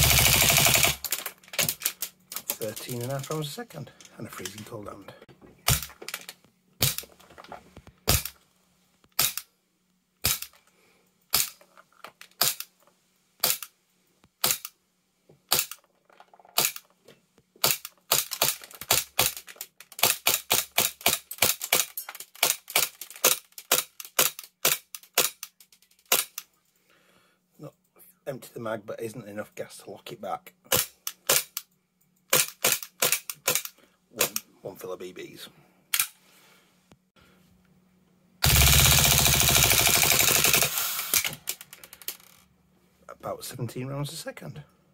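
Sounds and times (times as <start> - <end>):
airsoft pistol shots: 8.1 - 8.3.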